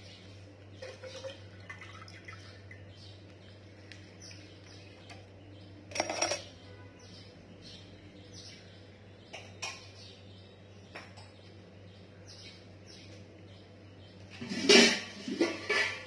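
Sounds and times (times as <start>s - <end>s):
small birds chirping: 0.0s - 14.4s
low steady hum: 0.0s - 16.0s.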